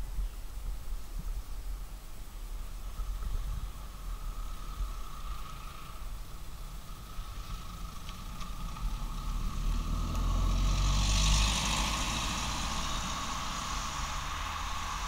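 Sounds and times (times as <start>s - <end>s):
vehicle passing: 3.6s - 15.0s.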